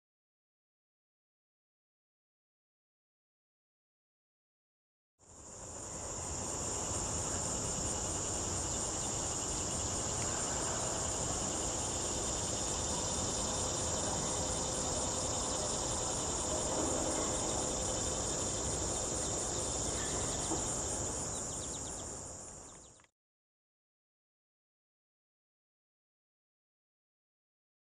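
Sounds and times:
crickets trilling: 5.2s - 23.1s.

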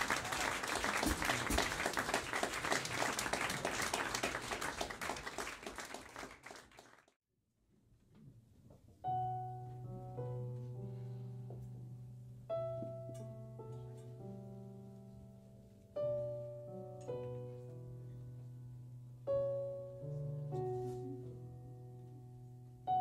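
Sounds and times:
audience applauding: 0.0s - 7.2s
jazz piano trio playing: 9.0s - 23.0s.

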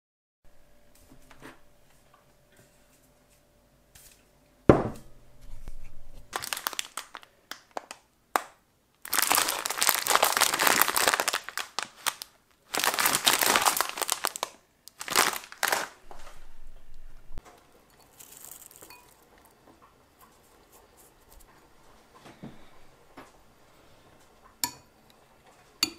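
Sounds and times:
plastic bag crinkling: 5.6s - 17.3s, 18.0s - 19.5s.

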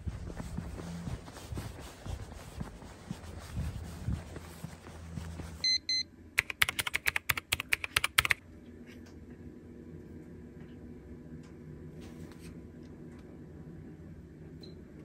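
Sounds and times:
short beeps: 5.6s - 6.1s
typing on laptop keyboard: 6.4s - 8.4s.

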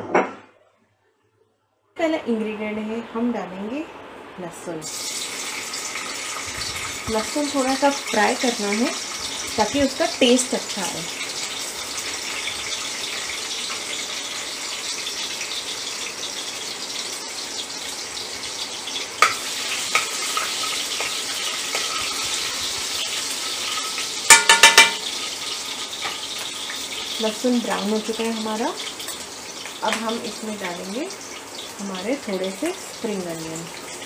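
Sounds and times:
garlic sizzling in hot oil: 4.8s - 34.0s
metal ladle scraping pan: 19.2s - 22.5s
ladle clinking on pan: 23.7s - 25.2s.

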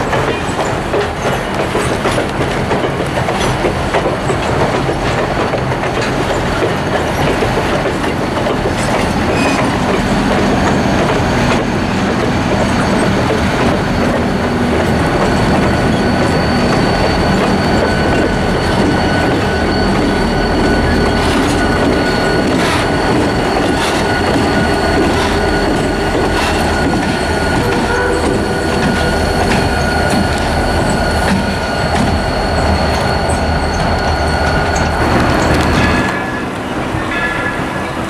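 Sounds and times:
diesel locomotive engines running: 0.0s - 38.0s
train wheels rolling on rails: 0.0s - 38.0s
high-pitched wheel squeal: 12.7s - 38.0s.

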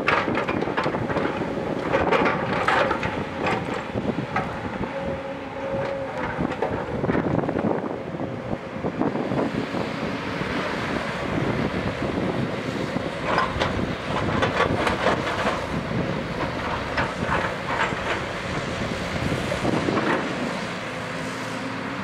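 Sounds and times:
metallic clanks and scrapes: 0.0s - 4.6s
excavator diesel engine: 0.0s - 22.0s.

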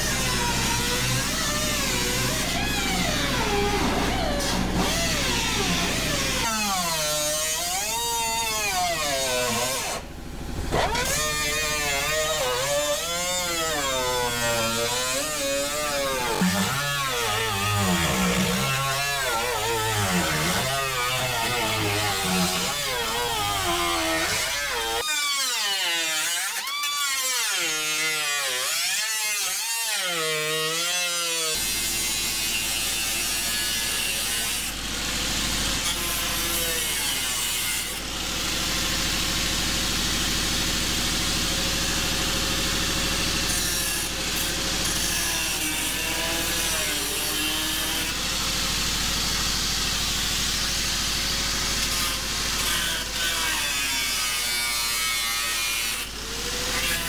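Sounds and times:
angle grinder cutting sheet metal: 0.0s - 57.0s.

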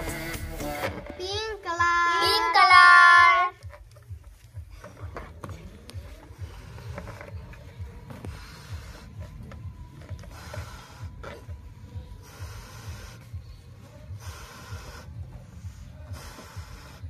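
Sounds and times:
breath puffs into balloon: 8.1s - 17.0s.

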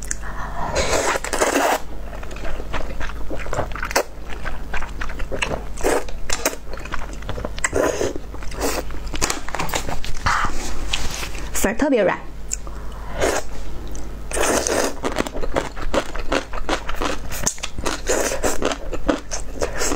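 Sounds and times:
person slurping noodles: 0.2s - 1.8s, 14.3s - 15.0s
wet chewing: 1.2s - 10.3s.

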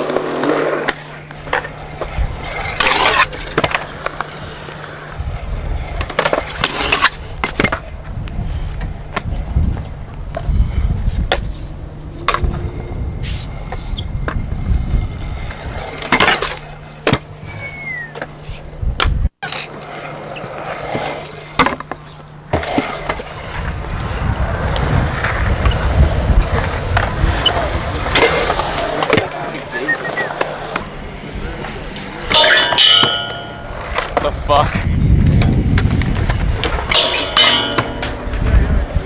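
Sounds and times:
skateboard wheels rolling on concrete: 0.0s - 39.0s
steady low hum: 0.2s - 39.0s
skateboards clacking on ground: 19.0s - 39.0s.

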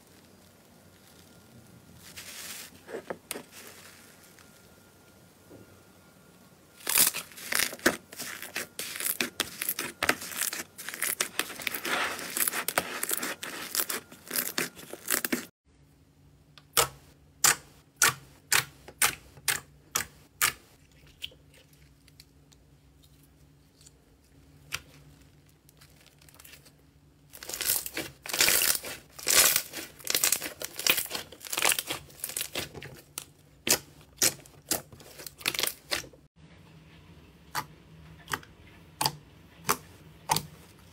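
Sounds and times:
slime crackling and popping: 6.8s - 15.5s, 27.3s - 36.2s.

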